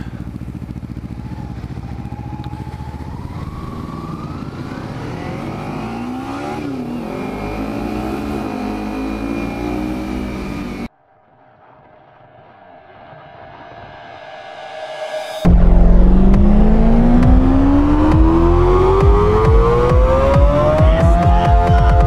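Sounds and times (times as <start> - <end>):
motorcycle engine accelerating: 0.0 - 10.9, 15.2 - 22.0
steady rushing noise: 10.6 - 22.0.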